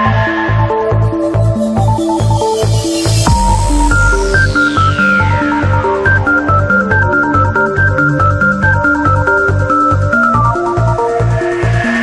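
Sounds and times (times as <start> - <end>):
electronic dance music: 0.8 - 7.6.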